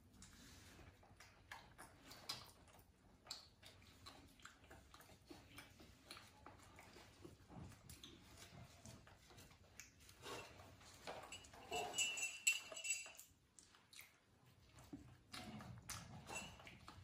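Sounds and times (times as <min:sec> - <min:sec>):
monkey eating: 0:00.0 - 0:17.0
metal spoon stirring in ceramic mug: 0:11.3 - 0:13.3.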